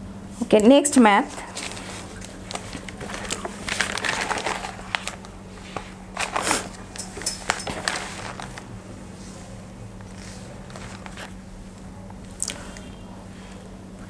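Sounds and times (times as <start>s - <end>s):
paper pages rustling: 1.3s - 8.8s, 10.0s - 11.4s.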